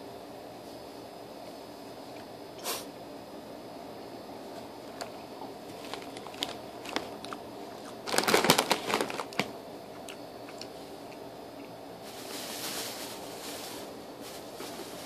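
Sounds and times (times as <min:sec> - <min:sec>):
plastic packaging crinkling: 0:04.9 - 0:10.7, 0:12.0 - 0:15.0
soft rustling: 0:12.0 - 0:15.0.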